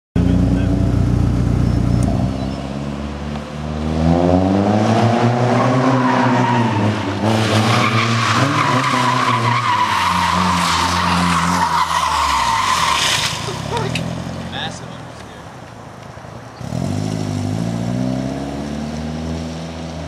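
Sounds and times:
car engine revving hard: 3.6s - 10.9s
tyres squealing: 7.6s - 14.6s.

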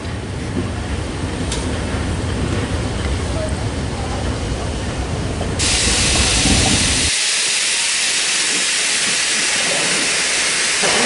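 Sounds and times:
low rumble of train on track: 0.0s - 11.0s
steam locomotive venting steam: 5.2s - 11.0s.

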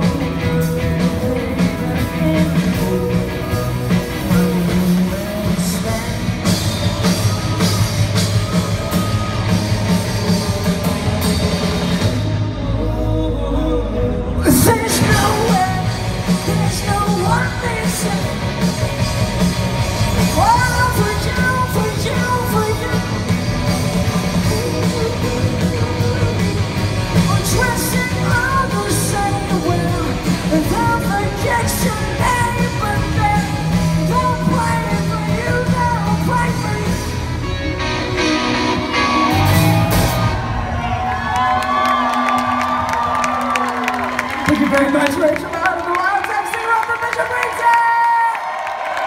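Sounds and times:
woman singing lead: 0.0s - 18.8s, 20.1s - 37.3s
rock band playing live: 0.0s - 49.0s.

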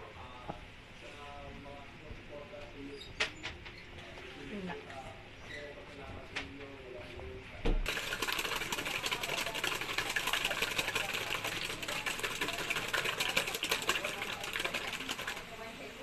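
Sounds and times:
whisk clattering in metal bowl: 7.8s - 15.6s.

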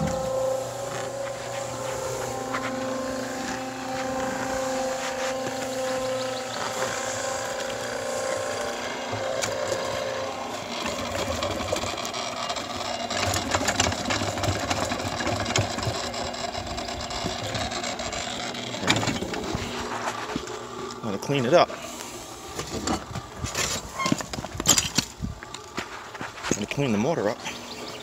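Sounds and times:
cement mixer motor hum: 0.0s - 28.0s
wet mortar sliding and scraping: 19.4s - 20.6s.

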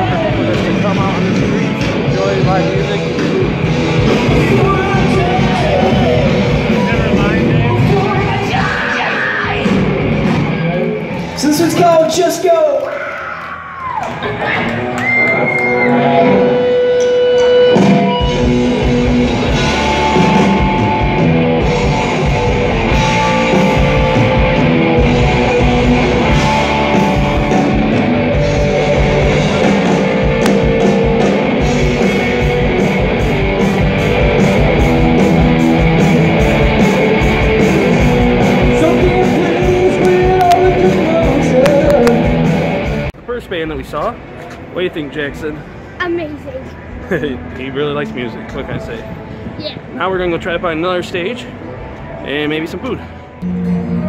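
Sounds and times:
live rock band playing: 0.0s - 12.4s, 14.2s - 43.2s.

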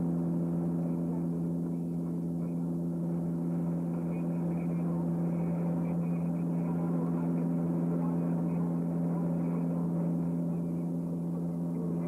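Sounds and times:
turboprop engines droning: 0.0s - 12.0s.

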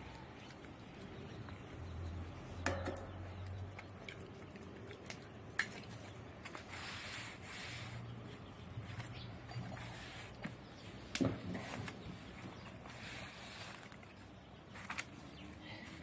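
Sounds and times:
hands rubbing dough: 5.9s - 16.0s.

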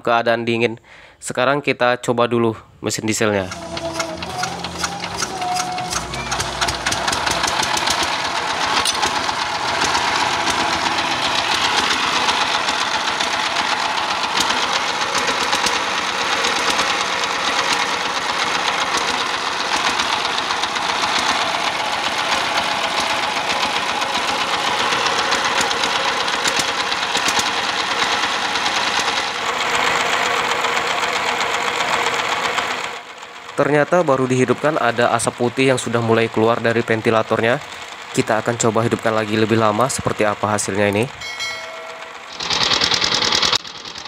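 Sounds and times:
diesel engine clattering: 3.4s - 44.0s.

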